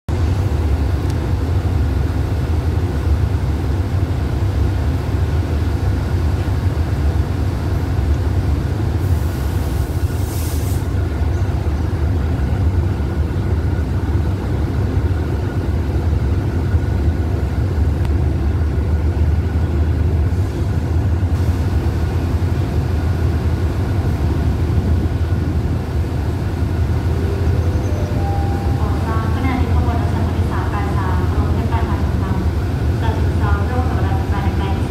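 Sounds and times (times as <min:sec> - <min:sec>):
diesel locomotive idling: 0:00.1 - 0:34.9
brief high hiss: 0:09.1 - 0:11.0.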